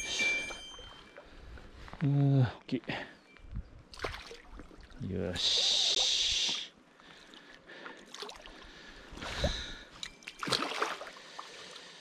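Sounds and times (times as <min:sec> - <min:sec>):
fish splashing in shallow water: 0:03.9 - 0:05.0, 0:08.0 - 0:12.0.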